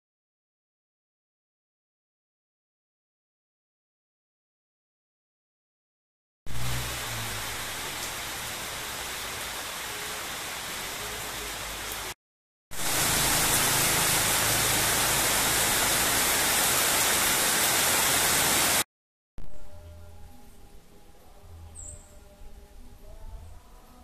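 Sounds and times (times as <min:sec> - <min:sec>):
rain falling: 0:06.5 - 0:18.9.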